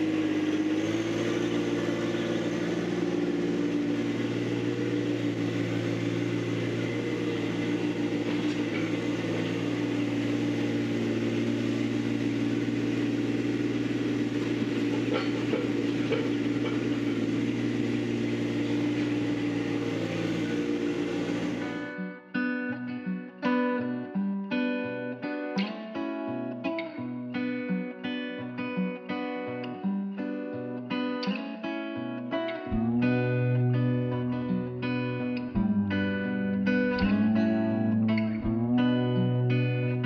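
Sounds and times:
tractor diesel engine running: 0.0 - 21.9, 35.6 - 40.0.

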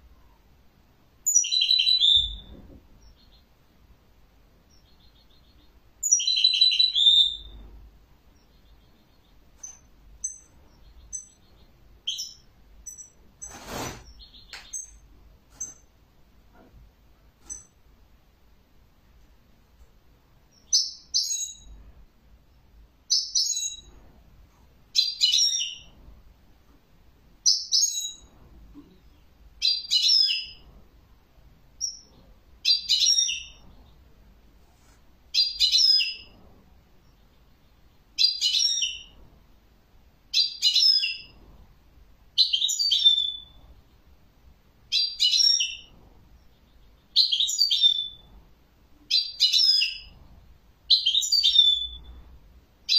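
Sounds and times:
bird twittering song: 1.2 - 3.5, 4.6 - 7.7, 8.3 - 15.9, 20.5 - 21.8, 22.5 - 23.9, 27.4 - 28.3, 31.8 - 34.0, 37.0 - 39.2, 42.4 - 44.1, 44.9 - 48.3, 49.1 - 50.1, 50.9 - 52.2.

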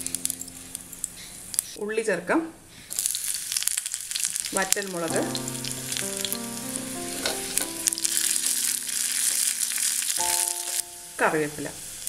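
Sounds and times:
spices sizzling and crackling in oil: 2.9 - 11.2.

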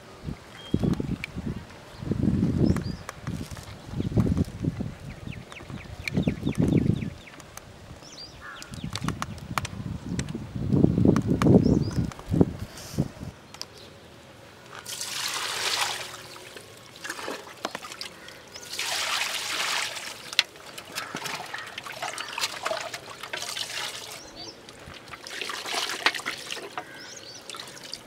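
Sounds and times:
water pouring and splashing: 14.8 - 28.0.

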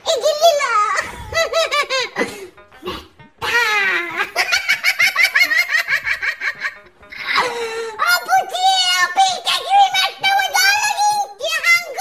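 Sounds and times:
high-pitched laughter: 0.1 - 2.5, 3.4 - 8.0.

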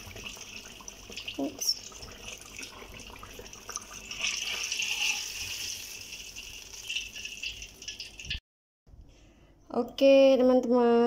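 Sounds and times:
eggplant sizzling in hot oil: 0.0 - 8.4.

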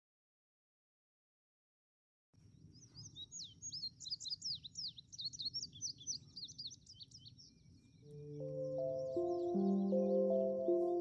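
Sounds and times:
bird singing high sweeping notes: 8.0 - 11.0
faint steady high tone: 8.1 - 11.0.

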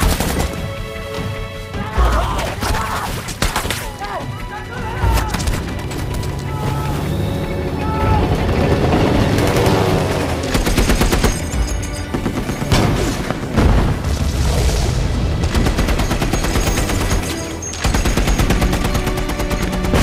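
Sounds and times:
rapid automatic gunfire: 8.5 - 13.2, 15.5 - 20.0
heavy explosion: 12.8 - 15.5.

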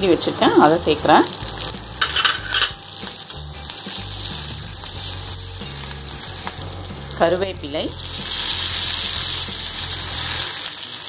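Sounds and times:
food sizzling in hot oil: 0.0 - 11.0
metal spatula scraping pan: 2.0 - 2.8.

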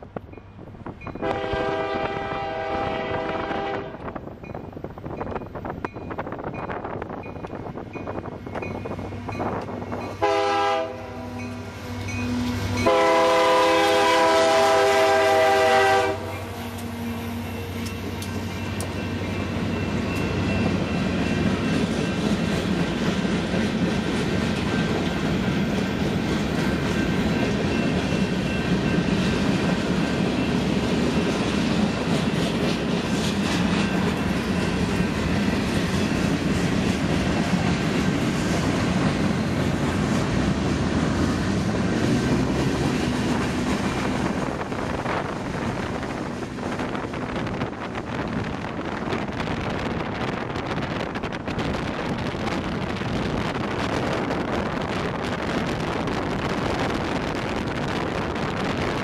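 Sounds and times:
train wheels rumbling on rails: 0.0 - 59.0
locomotive air horn blasts: 1.2 - 4.1, 10.2 - 17.7.

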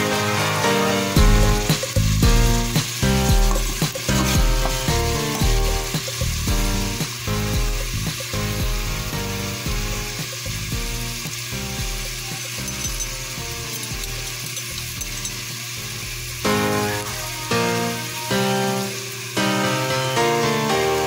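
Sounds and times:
background music with beat: 0.0 - 14.5
garlic sizzling in butter: 0.0 - 21.0.

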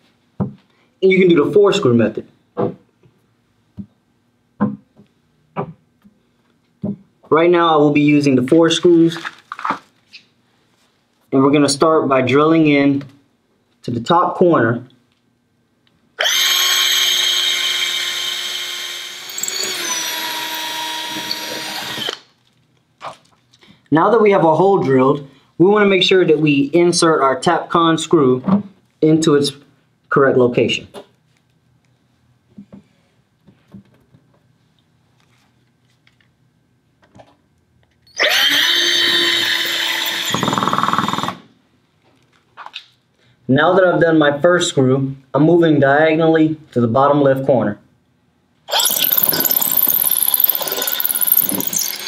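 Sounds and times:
cordless drill boring into concrete: 16.2 - 22.2, 38.1 - 41.4, 48.7 - 52.0.

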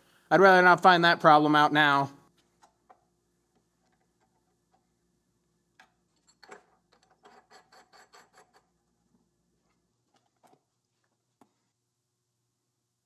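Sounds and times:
metal tool clicking and scraping: 5.8 - 8.8.

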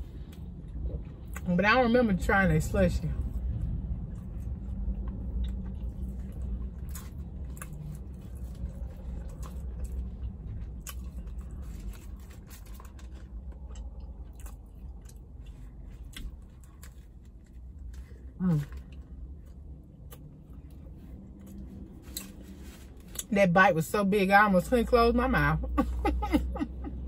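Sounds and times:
low hum: 0.0 - 27.0
chewing with wet mouth clicks: 0.2 - 1.5, 3.5 - 22.4.

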